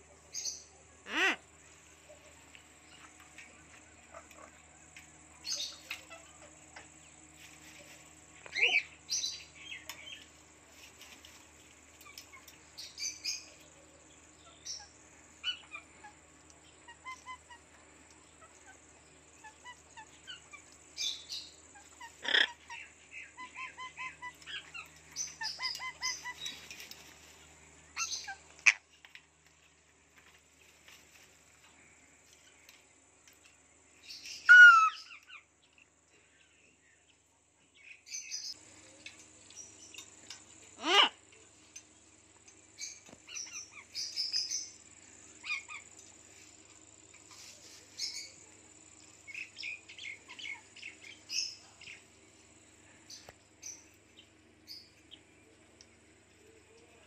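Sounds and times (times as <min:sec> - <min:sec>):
parrot squawk: 0:01.0 - 0:01.4, 0:22.0 - 0:22.8, 0:34.5 - 0:35.1, 0:40.8 - 0:41.2
parrot whistles and chirps: 0:34.4 - 0:35.1.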